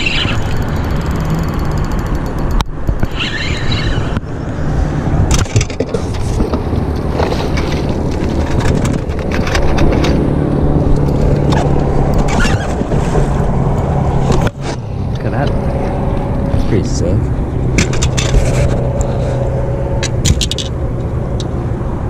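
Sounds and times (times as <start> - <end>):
dense steady rumble: 0.0 - 22.0
hand rubbing camera: 17.9 - 20.2.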